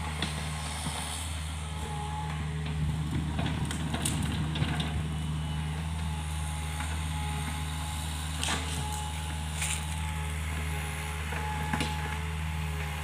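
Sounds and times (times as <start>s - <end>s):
diesel engine running: 0.0s - 13.0s
crackles and knocks of earth: 8.4s - 10.2s.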